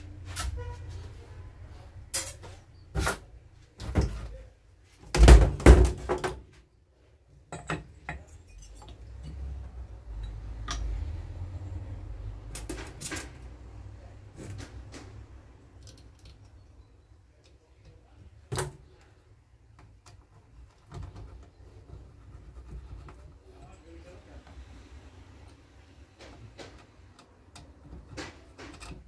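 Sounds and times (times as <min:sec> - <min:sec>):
knocks and clatters of engine parts: 0:12.4 - 0:16.6, 0:25.5 - 0:29.0.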